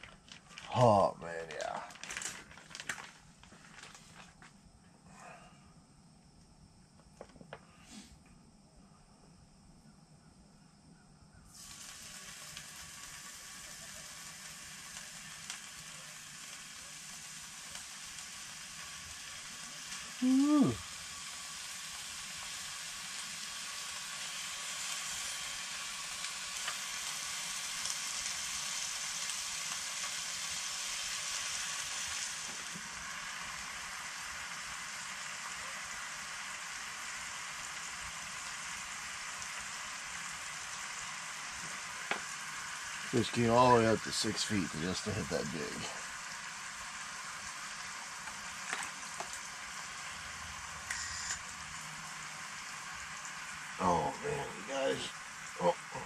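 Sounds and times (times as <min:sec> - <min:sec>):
bacon sizzling in a skillet: 0:11.5 - 0:56.0.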